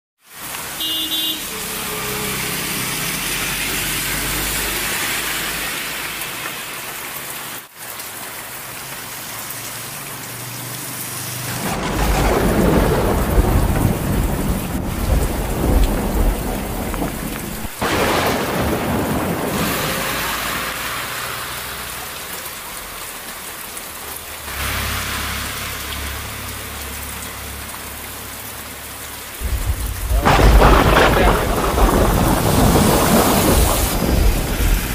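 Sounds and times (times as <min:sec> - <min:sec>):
heavy rain: 0:00.2 - 0:34.9
thunder rumbling: 0:11.5 - 0:21.1, 0:29.4 - 0:34.9.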